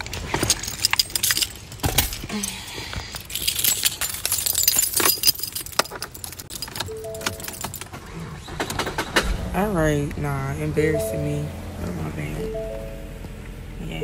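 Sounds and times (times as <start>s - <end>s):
keys jangling: 0.0s - 8.2s.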